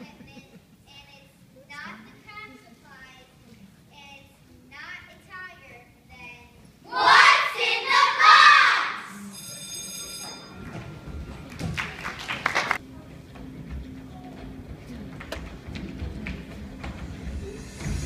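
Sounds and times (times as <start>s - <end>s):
overlapping voices: 6.9s - 9.1s, 11.4s - 12.8s
high ringing tone: 9.1s - 11.4s
sharp claps: 11.5s - 12.8s.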